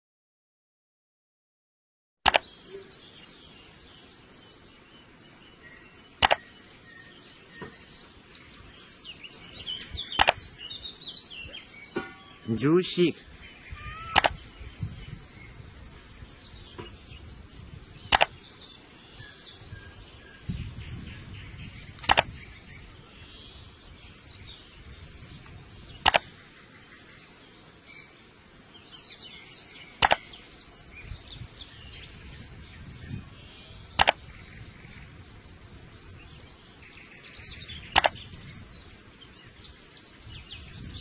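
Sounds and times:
sharp clicks: 2.3 - 2.5, 6.2 - 6.4, 10.1 - 10.5, 14.0 - 14.4, 18.1 - 18.4, 22.0 - 22.4, 25.4 - 26.3, 30.0 - 30.3, 34.0 - 34.2, 37.9 - 38.2
faint bird chirping: 2.3 - 41.0.

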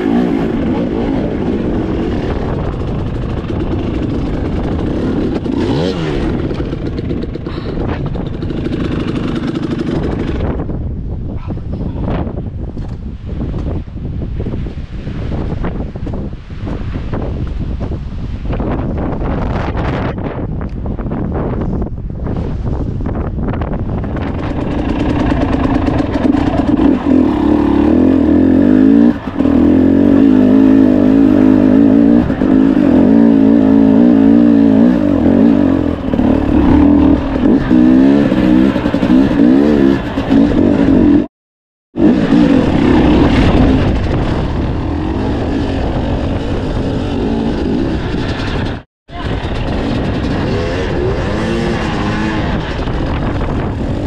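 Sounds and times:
dirt bike engine revving: 0.0 - 10.7, 23.9 - 41.3, 42.0 - 54.0.

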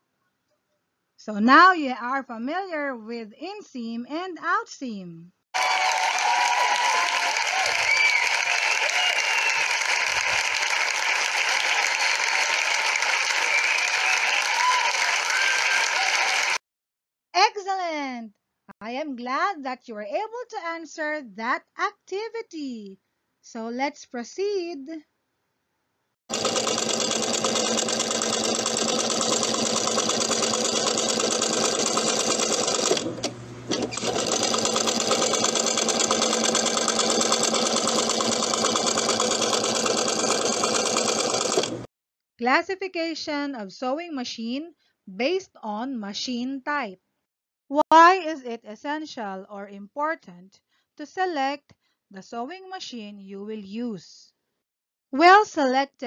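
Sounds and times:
crowd applause: 5.6 - 16.6
sewing machine running: 26.3 - 41.9.

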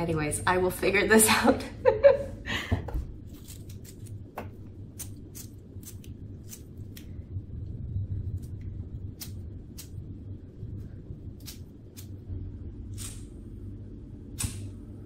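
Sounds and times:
lighter clicking: 14.4 - 14.7.

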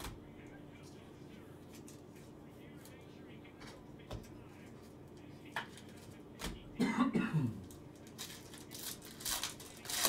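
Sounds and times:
person clearing throat: 6.8 - 7.6.

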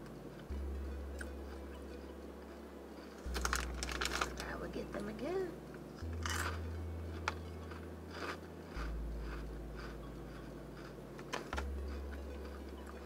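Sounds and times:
low hum: 0.0 - 13.0
person chewing crunchy snacks: 2.5 - 4.4, 6.0 - 13.0.

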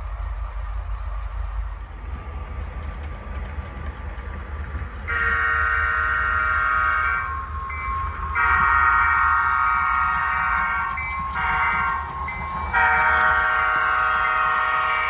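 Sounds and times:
model train rumbling on track: 0.0 - 15.0
multi-chime diesel horn blasts: 5.1 - 7.6, 8.4 - 15.0.

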